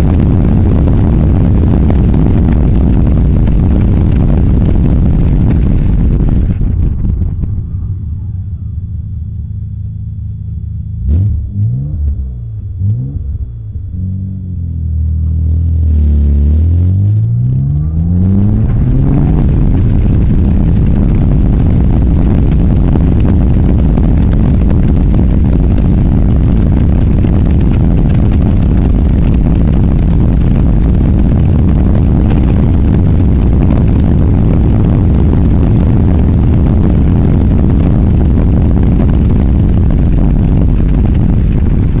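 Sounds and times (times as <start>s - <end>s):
wind buffeting microphone: 0.0s - 7.9s, 17.9s - 42.0s
car engine rising: 0.0s - 42.0s.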